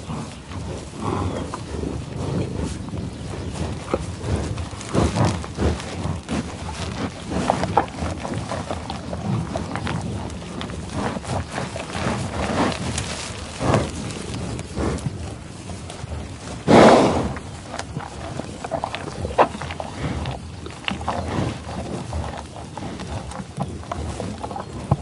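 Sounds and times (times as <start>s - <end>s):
animal snuffling breaths: 0.0s - 25.0s
grass crunching and tearing: 0.1s - 25.0s.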